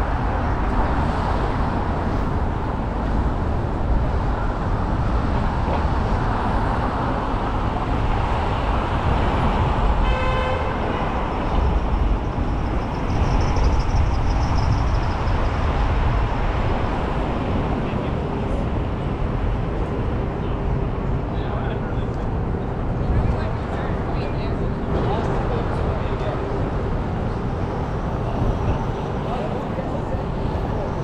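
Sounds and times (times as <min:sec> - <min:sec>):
street traffic rumble: 0:00.0 - 0:31.0
car horn toot: 0:10.0 - 0:11.2.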